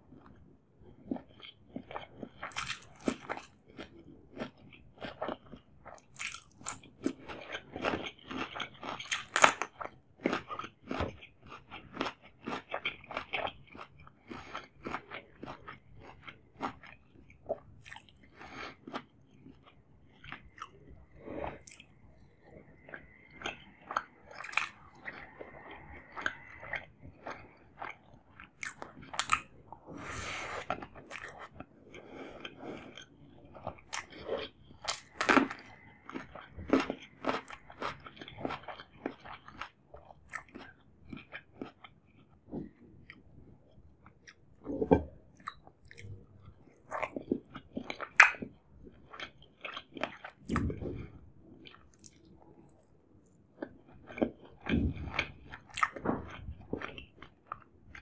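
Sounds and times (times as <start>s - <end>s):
soft chewing: 0.0s - 58.0s
crunching cucumber: 1.0s - 20.8s, 22.8s - 29.6s, 32.5s - 43.3s, 44.2s - 51.1s, 51.7s - 58.0s.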